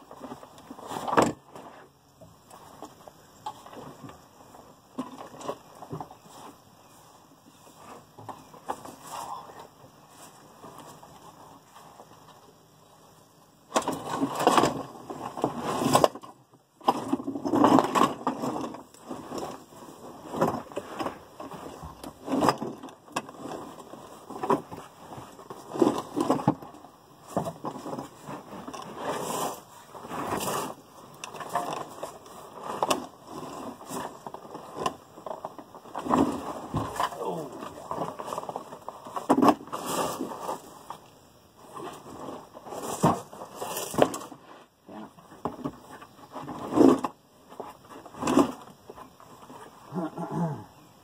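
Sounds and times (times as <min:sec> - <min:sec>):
creeper scraping on garage floor: 0:27.3 - 0:30.8.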